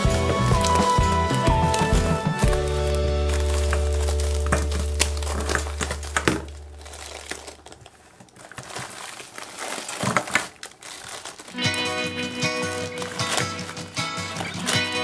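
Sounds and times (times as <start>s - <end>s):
background music: 0.0s - 5.7s, 11.6s - 15.0s
disposable glove crinkling: 0.0s - 15.0s.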